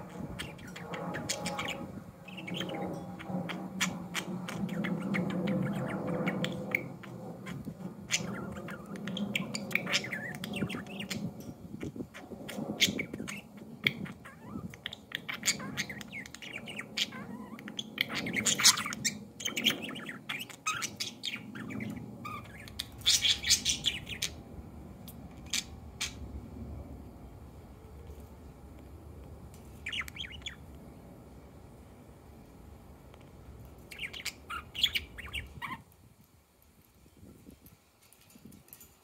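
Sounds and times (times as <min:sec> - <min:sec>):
budgies chirping and warbling: 0:00.0 - 0:24.4, 0:25.1 - 0:26.2, 0:29.8 - 0:30.7, 0:33.9 - 0:35.8.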